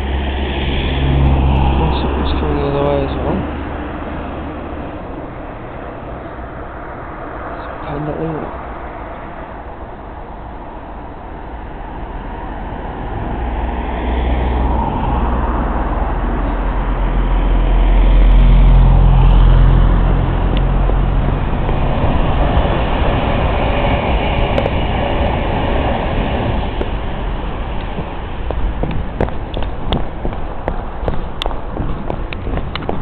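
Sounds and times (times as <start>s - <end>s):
diesel locomotive engine: 0.0s - 33.0s
train wheel and rail noise: 20.0s - 33.0s.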